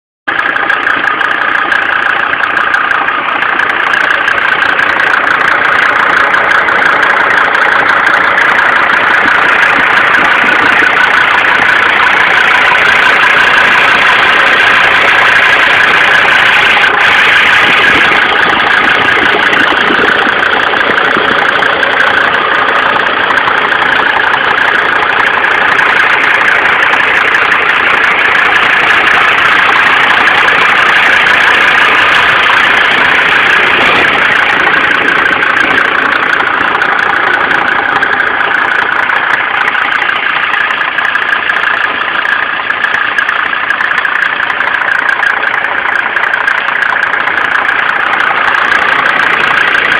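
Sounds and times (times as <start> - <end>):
diesel engine idling: 0.3 - 49.9.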